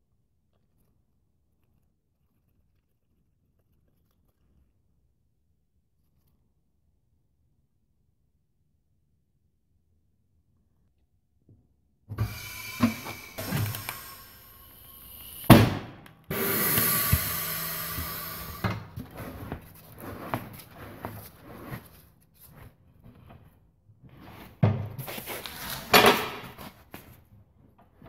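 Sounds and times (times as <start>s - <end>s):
hiss of air: 12.2s - 18.8s
wheel knocks and scrapes: 15.5s - 27.1s.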